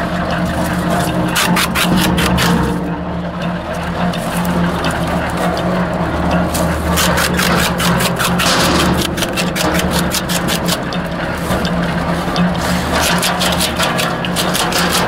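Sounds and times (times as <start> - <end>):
wood chipper humming: 0.0 - 15.0
blades cracking branch: 6.5 - 11.7, 12.6 - 15.0.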